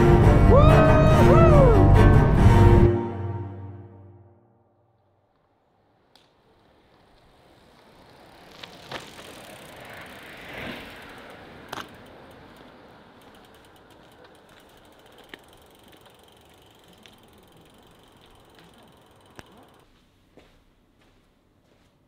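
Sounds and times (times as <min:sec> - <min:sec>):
bicycle freewheel ticking: 0:06.0 - 0:19.9
footsteps on paving: 0:19.8 - 0:22.0.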